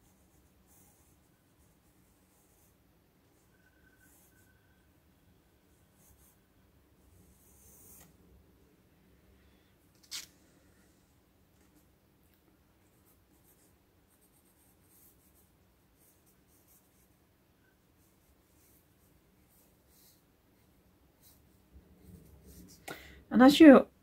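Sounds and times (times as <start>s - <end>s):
pencil scratching on paper: 0.0s - 4.8s, 5.7s - 8.1s, 12.8s - 22.8s.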